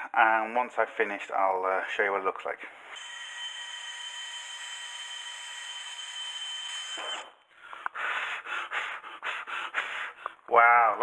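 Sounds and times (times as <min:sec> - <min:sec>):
drill with wire brush whining: 0:02.9 - 0:07.4.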